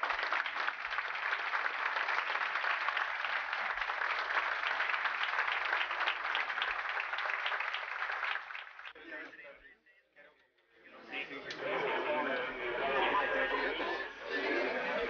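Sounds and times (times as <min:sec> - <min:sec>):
crowd applauding: 0:00.0 - 0:09.0.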